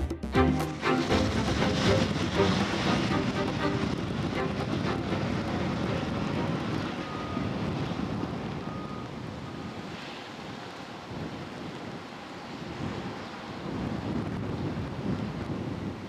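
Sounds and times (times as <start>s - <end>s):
low rumble: 0.1s - 7.1s
wind buffeting microphone: 1.1s - 16.0s.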